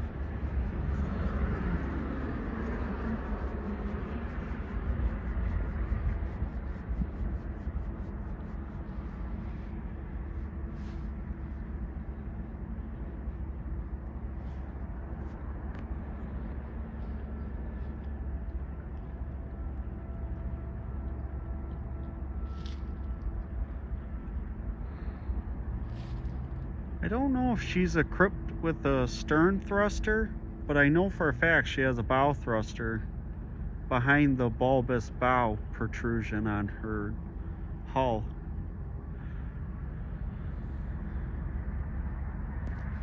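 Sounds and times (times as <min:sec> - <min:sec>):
wind on microphone: 0:00.0 - 0:13.6
distant diesel engine hum: 0:00.0 - 0:43.0.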